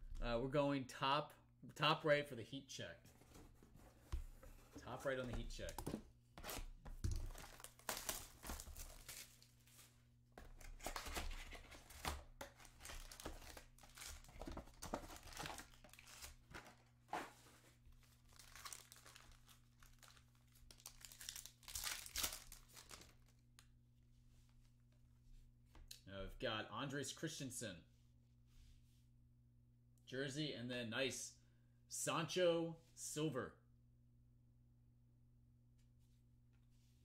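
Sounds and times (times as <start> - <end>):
wrappers crinkling and tearing: 7.2 - 9.6, 10.6 - 16.8, 18.0 - 23.3.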